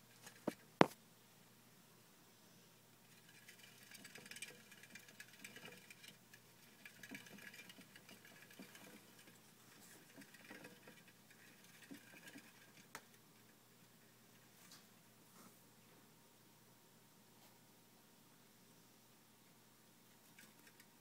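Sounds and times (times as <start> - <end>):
hamster running in plastic wheel: 3.0 - 13.6, 20.3 - 21.0.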